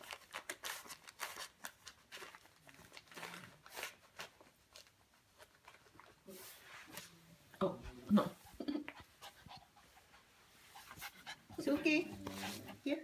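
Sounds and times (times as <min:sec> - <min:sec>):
wrapping paper crinkling: 0:00.0 - 0:06.9.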